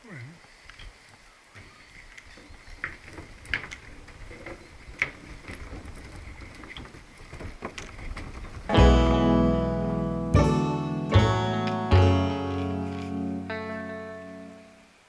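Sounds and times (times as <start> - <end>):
wheels rolling over wooden planks: 2.0 - 9.0.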